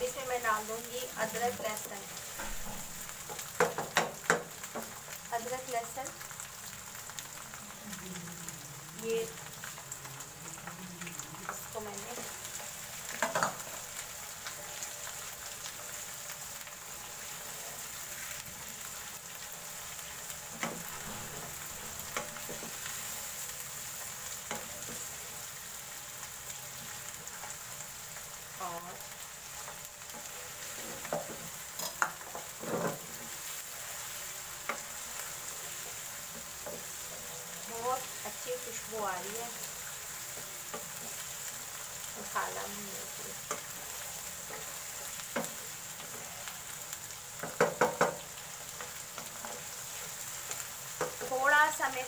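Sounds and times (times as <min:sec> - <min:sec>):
meat sizzling in hot oil: 0:00.0 - 0:52.0
wooden spoon scraping a pan: 0:11.4 - 0:23.6, 0:29.4 - 0:38.9.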